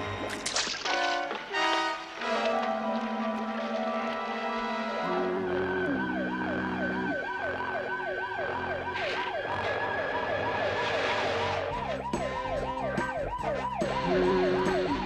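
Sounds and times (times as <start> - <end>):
low held music notes: 1.1 - 9.0
cartoon police siren warbling: 2.5 - 15.0.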